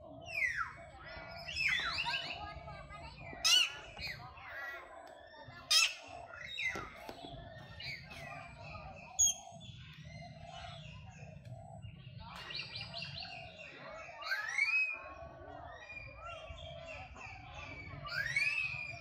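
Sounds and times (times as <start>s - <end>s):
shrill animal chirping and squeals: 14.2s - 15.0s, 17.3s - 19.0s.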